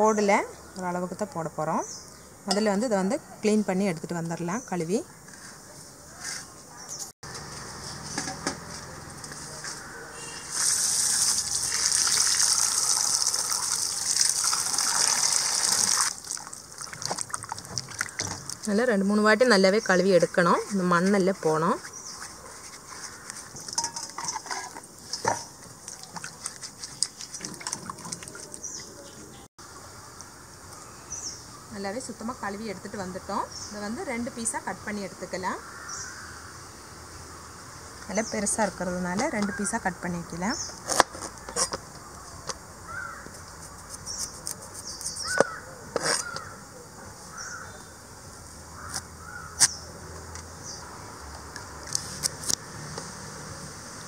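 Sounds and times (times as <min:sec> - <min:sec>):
water splashing in a bowl: 0:10.4 - 0:18.8, 0:25.0 - 0:29.0
birds calling: 0:35.6 - 0:36.6, 0:38.1 - 0:51.0.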